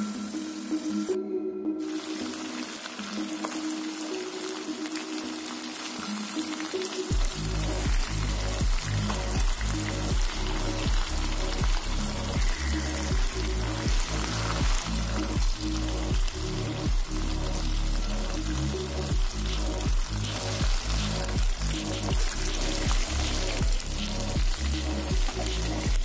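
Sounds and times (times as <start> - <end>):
chicken sizzling in hot oil: 0.0 - 1.2, 1.8 - 26.0
background music with steady beat: 0.0 - 26.0.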